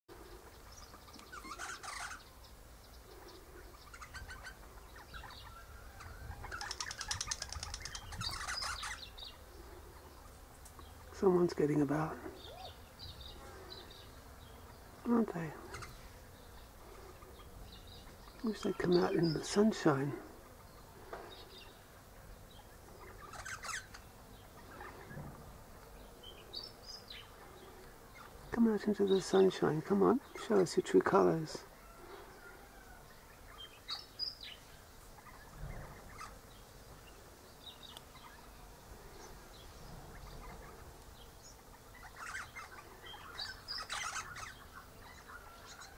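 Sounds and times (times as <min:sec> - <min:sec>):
parrot chatter: 0:00.9 - 0:02.3, 0:03.8 - 0:09.2, 0:23.0 - 0:25.1, 0:41.7 - 0:45.9.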